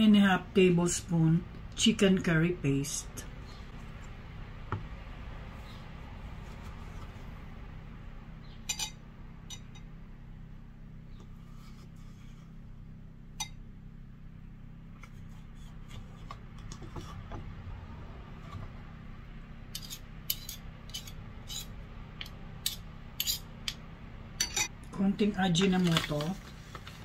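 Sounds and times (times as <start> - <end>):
low hum: 0.0 - 27.0
metal spoons clinking on bowl: 8.7 - 9.9, 24.4 - 24.7.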